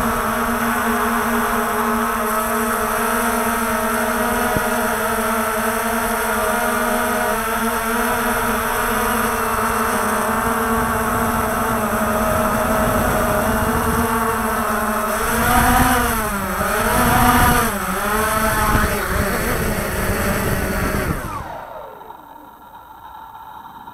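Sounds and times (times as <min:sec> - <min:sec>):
drone propellers buzzing: 0:00.0 - 0:23.9.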